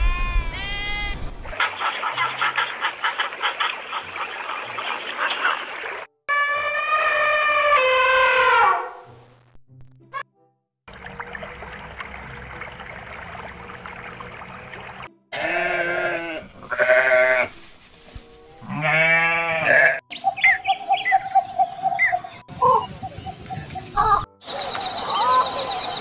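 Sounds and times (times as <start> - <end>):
sheep bleating: 0.0 - 1.2, 15.3 - 17.5, 18.6 - 20.0
bird chirping: 20.1 - 26.0.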